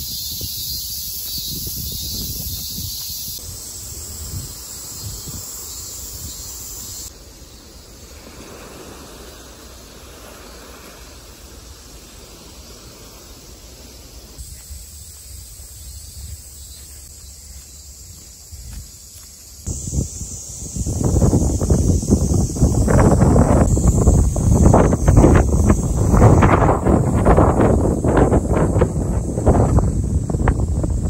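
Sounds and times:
wind: 0:00.0 - 0:31.0
waves washing onto a beach: 0:03.9 - 0:15.7
footsteps on leaves: 0:14.4 - 0:19.6.

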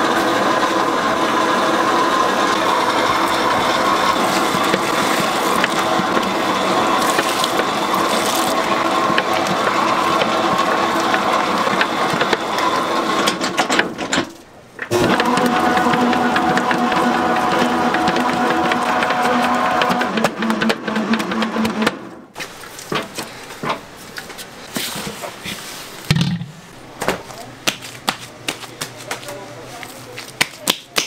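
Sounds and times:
machine rattling geared whir: 0:00.0 - 0:21.8.

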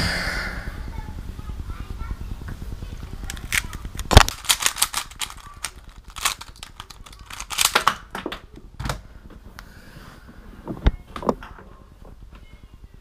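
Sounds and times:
plastic puzzle clicking and rattling: 0:03.2 - 0:08.5.

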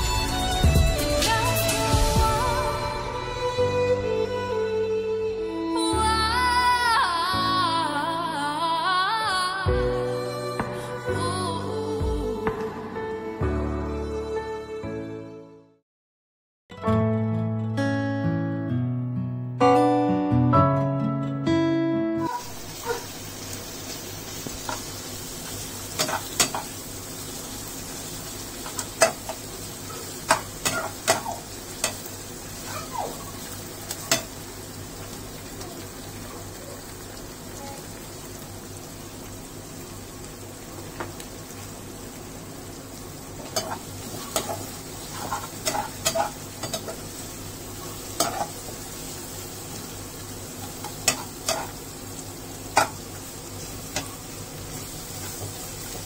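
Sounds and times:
onions sizzling in oil: 0:22.3 - 0:56.0
spatula scraping and clinking pan: 0:43.6 - 0:47.0.

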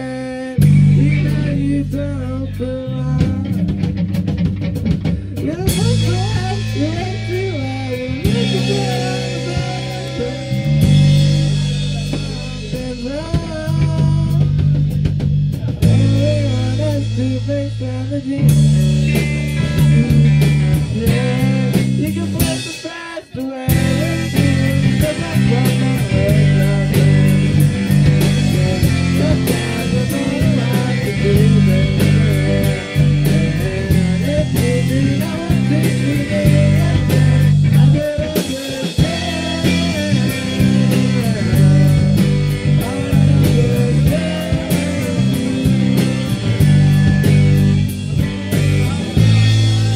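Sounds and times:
bass guitar: 0:00.0 - 0:49.9
drum kit: 0:00.0 - 0:49.9
electric guitar: 0:00.0 - 0:49.9.

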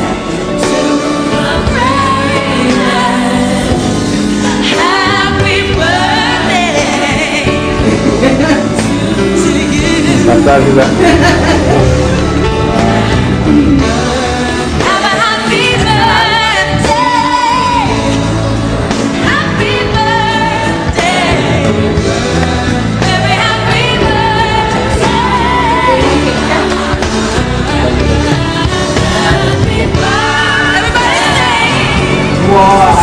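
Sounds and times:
instrumental backing: 0:00.0 - 0:33.0
person singing: 0:04.5 - 0:19.9.

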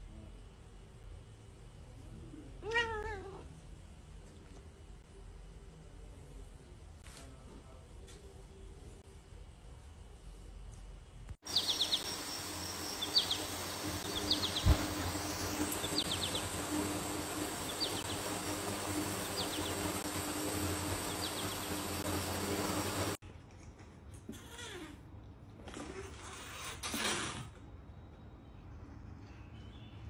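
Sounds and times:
outdoor background hiss: 0:00.0 - 0:23.2
high chirping call: 0:11.4 - 0:22.5.

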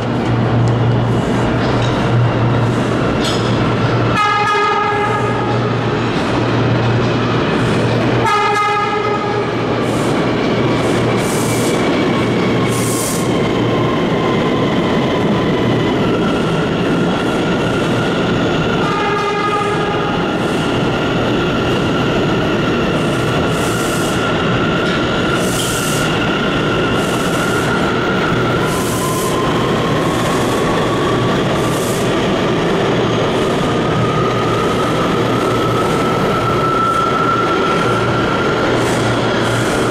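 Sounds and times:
subway train wheels rumbling: 0:00.0 - 0:39.9
train horn: 0:04.1 - 0:05.7, 0:08.2 - 0:09.5, 0:18.8 - 0:20.2.

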